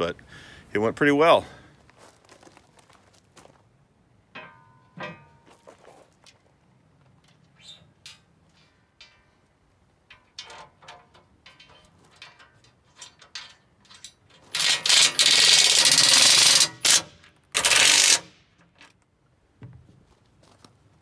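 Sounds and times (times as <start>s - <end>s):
cordless drill driving screws: 14.5s - 18.3s.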